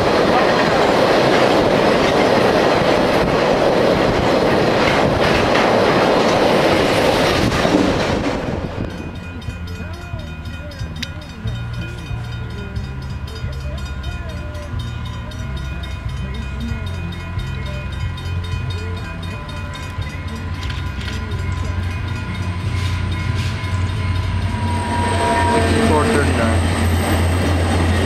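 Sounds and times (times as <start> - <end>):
diesel locomotive engine rumble: 0.0 - 28.0
steady high tone: 8.5 - 28.0.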